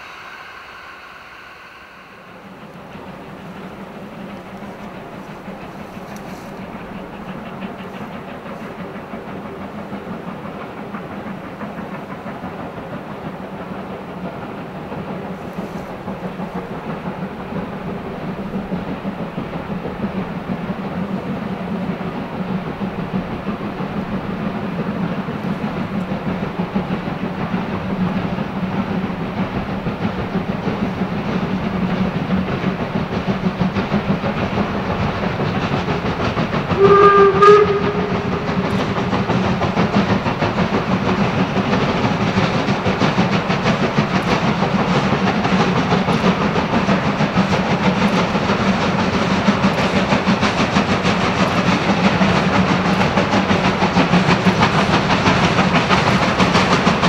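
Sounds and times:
steam whistle blast: 0:00.0 - 0:04.0, 0:36.8 - 0:39.1
steam locomotive exhaust beats: 0:00.0 - 0:57.0.

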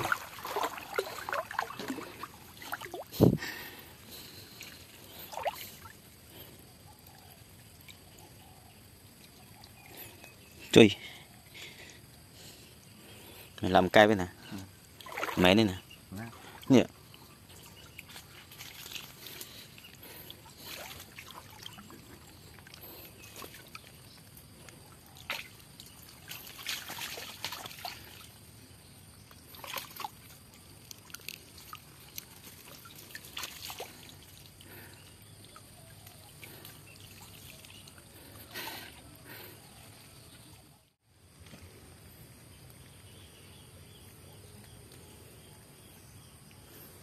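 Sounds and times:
small water splashes: 0:00.0 - 0:06.5, 0:14.8 - 0:40.7
water trickling and sloshing: 0:00.0 - 0:41.0.

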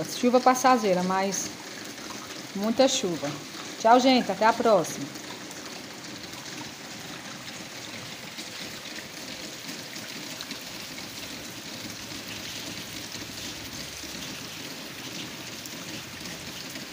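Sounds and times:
rain pattering on water: 0:00.0 - 0:16.9
water swirling down a drain: 0:00.0 - 0:16.9.

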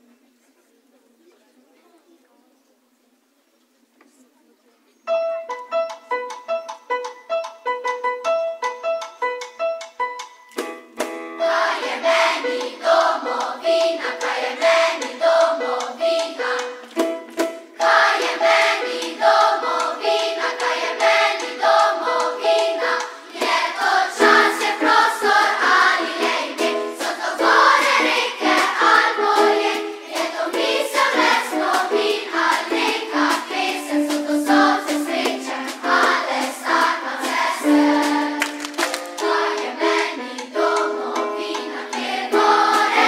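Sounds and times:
children's choir singing: 0:11.4 - 0:43.0
band playing: 0:16.4 - 0:40.1.

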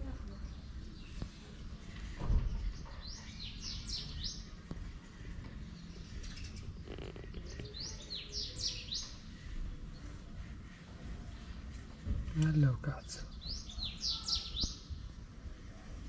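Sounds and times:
songbird chirping: 0:00.0 - 0:16.0
low thump: 0:02.0 - 0:02.9.

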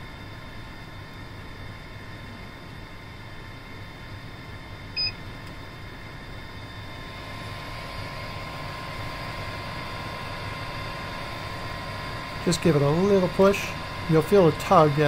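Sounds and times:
machine humming: 0:00.0 - 0:15.0
thin high whine: 0:06.7 - 0:15.0.

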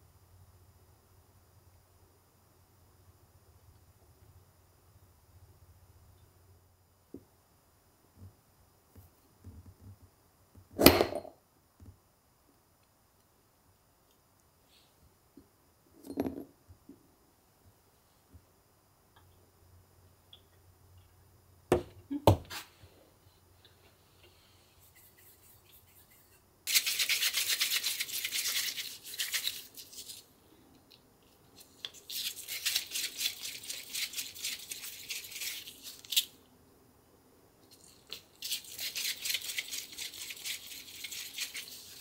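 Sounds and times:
hands rubbing dough: 0:23.8 - 0:30.3, 0:31.3 - 0:36.3, 0:37.8 - 0:42.0.

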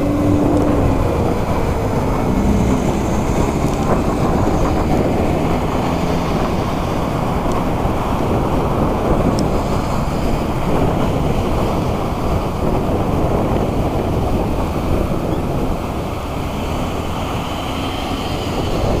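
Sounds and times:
road traffic passing: 0:00.0 - 0:19.0
wind rumbling on microphone: 0:00.0 - 0:19.0.

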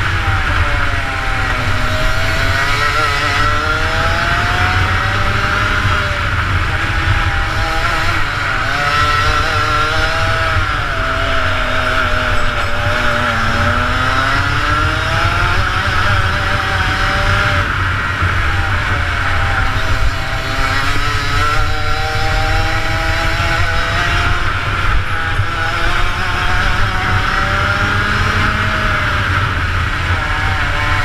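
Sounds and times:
kart engine revving: 0:00.0 - 0:31.0.

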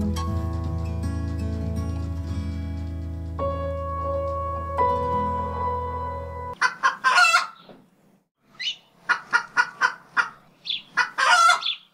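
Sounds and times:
music with held chords: 0:00.0 - 0:06.6
chicken clucking: 0:06.6 - 0:07.7, 0:08.6 - 0:11.9.

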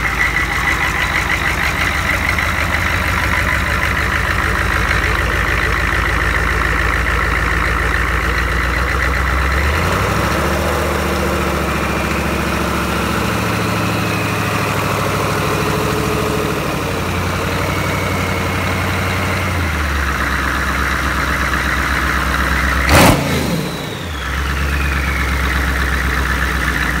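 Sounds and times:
diesel engine idling: 0:00.0 - 0:27.0
falling high whistle: 0:23.6 - 0:25.9.

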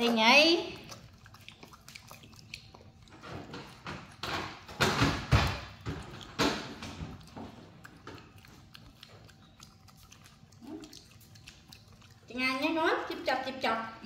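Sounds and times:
crunchy chewing: 0:00.0 - 0:13.2.

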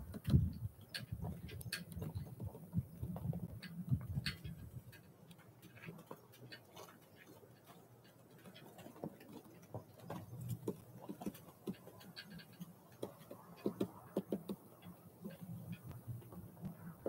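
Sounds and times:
bird beak tapping: 0:12.5 - 0:16.0.

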